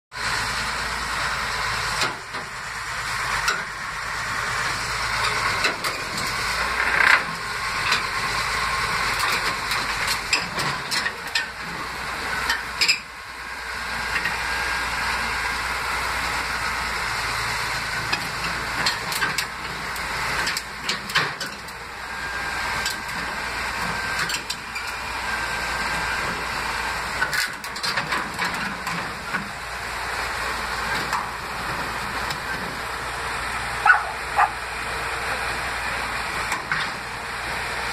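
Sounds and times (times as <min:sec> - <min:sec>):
bulldozer diesel engine running: 0:00.1 - 0:37.9
steel tracks clanking on metal: 0:05.2 - 0:08.2, 0:09.1 - 0:13.1, 0:18.0 - 0:25.1, 0:25.7 - 0:29.6.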